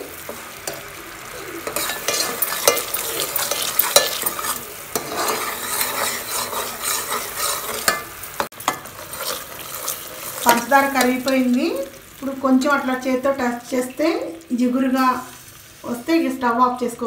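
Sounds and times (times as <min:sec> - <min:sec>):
metal ladle scraping a pot: 0:01.6 - 0:10.6.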